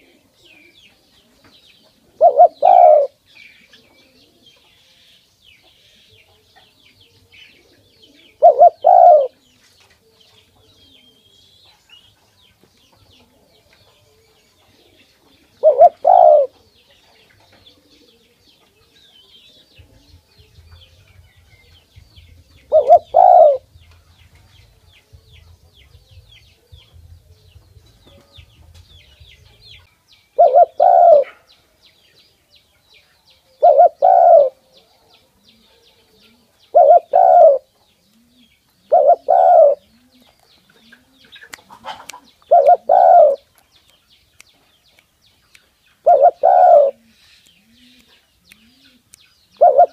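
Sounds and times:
dove cooing: 0:00.0 - 0:00.7, 0:02.0 - 0:04.6, 0:07.5 - 0:09.4, 0:14.7 - 0:16.7, 0:17.6 - 0:18.4, 0:22.2 - 0:23.8, 0:30.4 - 0:31.5, 0:33.6 - 0:34.7, 0:35.5 - 0:43.5, 0:46.0 - 0:49.9.

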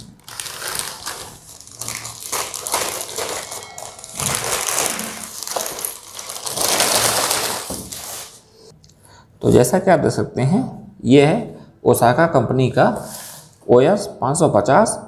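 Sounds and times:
plastic tearing: 0:00.0 - 0:08.4
scissors cutting plastic: 0:00.0 - 0:08.4
plastic bag crinkling and rustling: 0:00.0 - 0:08.5.

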